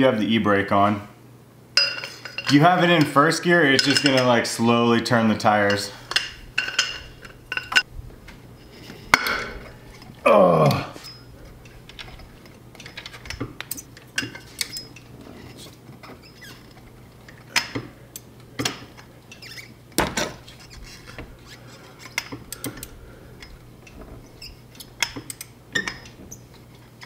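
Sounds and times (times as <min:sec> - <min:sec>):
metal clinks and knocks: 0:01.8 - 0:02.6, 0:06.1 - 0:07.9, 0:21.9 - 0:27.0.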